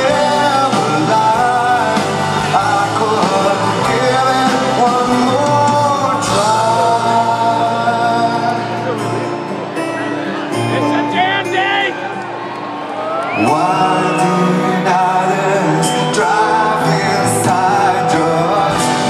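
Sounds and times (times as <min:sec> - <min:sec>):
man singing long notes: 0:00.0 - 0:09.3, 0:13.3 - 0:19.0
acoustic guitars: 0:00.0 - 0:19.0
live rock band playing slow song: 0:00.0 - 0:19.0.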